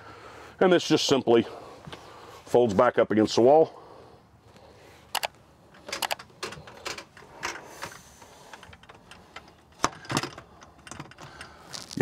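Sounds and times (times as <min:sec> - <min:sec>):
wooden bed slats clicking and knocking: 0:05.8 - 0:11.3.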